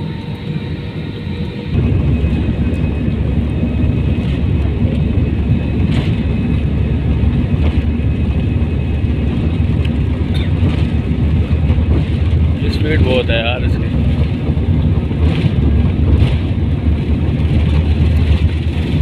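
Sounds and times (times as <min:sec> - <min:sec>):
faint high whine: 0:00.0 - 0:09.2
jet engines rumbling: 0:00.0 - 0:19.0.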